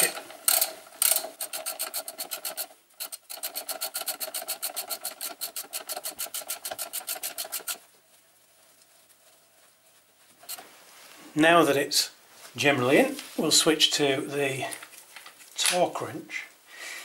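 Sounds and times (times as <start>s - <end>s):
socket ratchet clicking: 0.0s - 7.8s.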